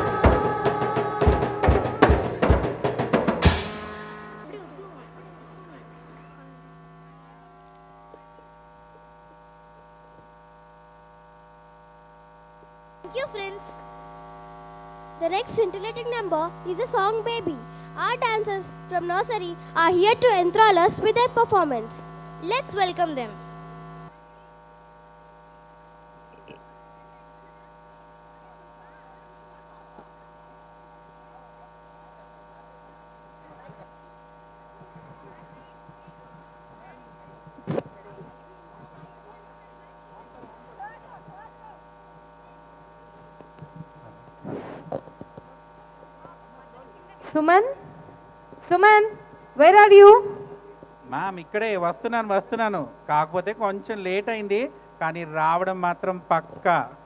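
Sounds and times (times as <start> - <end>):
electrical mains hum: 0.0 - 57.0
faint audience murmur: 4.1 - 8.6, 26.3 - 30.4, 31.1 - 34.0, 34.6 - 48.2
person speaking: 15.2 - 23.4.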